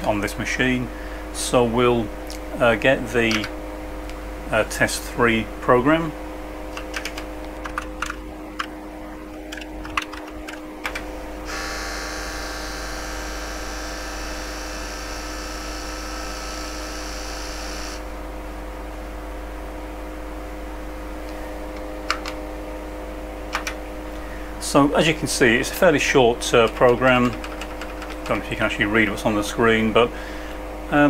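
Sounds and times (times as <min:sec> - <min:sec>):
steady machine hum: 0:00.0 - 0:31.0
keyboard keys clicking: 0:06.7 - 0:08.7, 0:09.5 - 0:11.0, 0:22.1 - 0:22.4, 0:23.5 - 0:23.8, 0:26.6 - 0:28.4.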